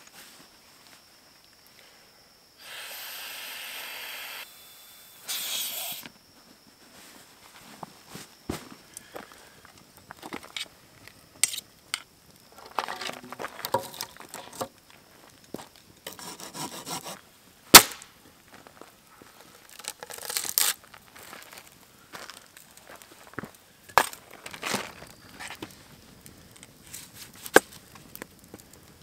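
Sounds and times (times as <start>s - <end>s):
handling wood and cooking gear: 6.9s - 16.4s, 19.2s - 25.8s
sharp cracks: 17.7s - 18.2s
footsteps crunching on gravel: 20.8s - 25.6s.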